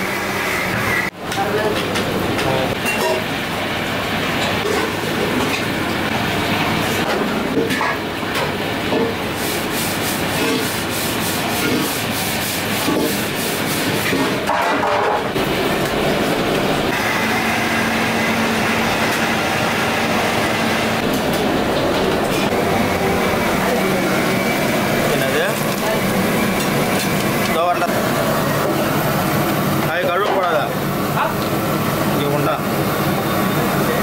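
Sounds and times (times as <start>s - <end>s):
steel utensils scraping and clattering: 11.4s - 12.1s
gas burners rushing: 13.8s - 34.0s.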